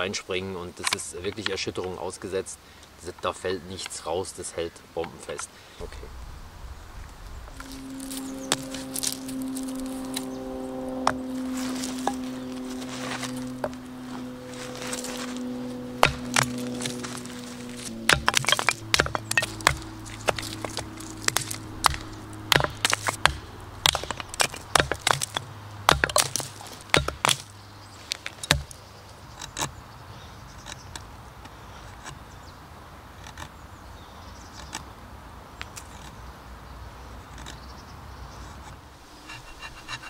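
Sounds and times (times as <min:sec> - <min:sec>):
blade scraping wood: 0:07.5 - 0:29.8, 0:37.2 - 0:40.0
knife chopping wood: 0:16.0 - 0:27.5, 0:28.2 - 0:28.8.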